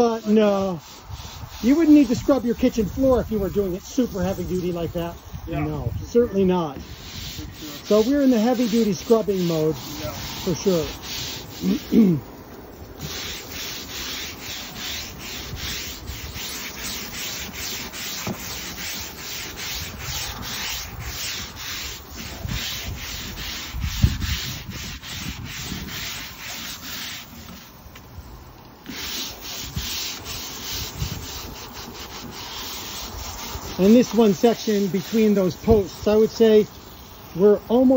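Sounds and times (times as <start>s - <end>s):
brush scrubbing decking: 0.0s - 37.9s.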